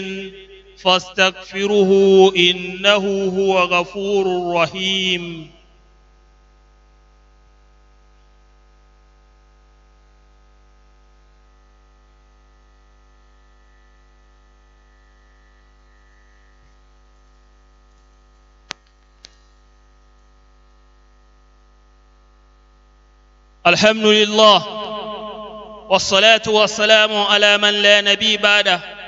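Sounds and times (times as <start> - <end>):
low electrical mains hum: 0.0 - 29.0.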